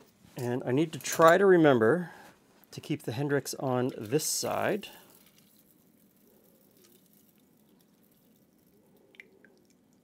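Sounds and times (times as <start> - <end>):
liquid trickling into glass: 5.0 - 10.0.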